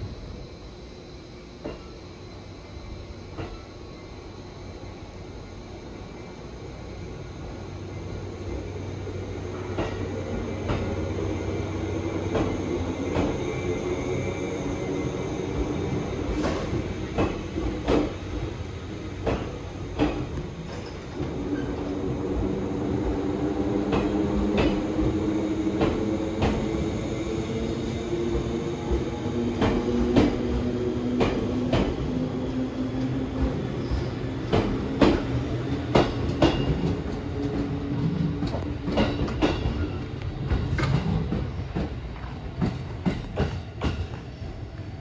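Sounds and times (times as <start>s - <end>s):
train wheels clacking over rail joints: 9.6s - 11.0s, 16.3s - 18.4s, 19.2s - 21.4s, 23.8s - 25.1s, 31.1s - 32.0s, 34.4s - 44.4s.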